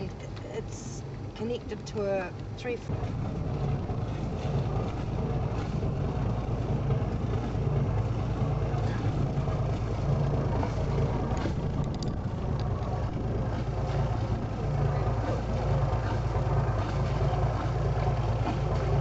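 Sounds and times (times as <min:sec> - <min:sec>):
boat engine humming: 0:00.0 - 0:19.0.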